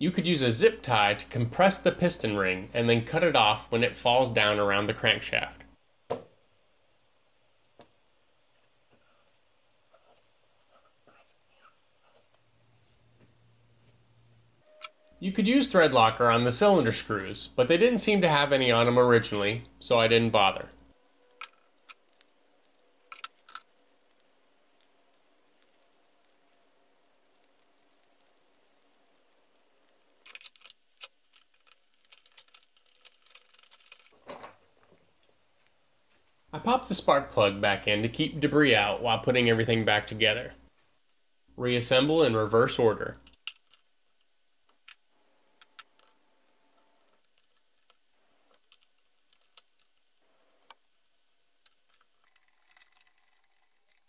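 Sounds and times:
small parts clicking on plastic: 21.3 - 26.6, 27.4 - 34.5, 43.2 - 45.0, 45.6 - 50.9.

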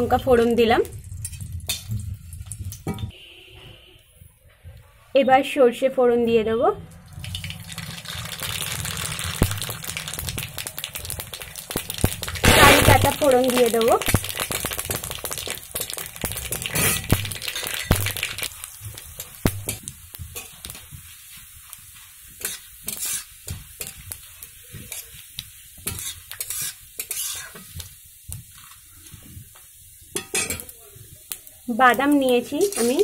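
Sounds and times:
spices sizzling and spattering in oil: 0.0 - 3.1, 7.0 - 33.0
metal spatula scraping a pan: 16.7 - 18.0, 22.4 - 25.2, 25.8 - 27.8, 32.3 - 33.0.

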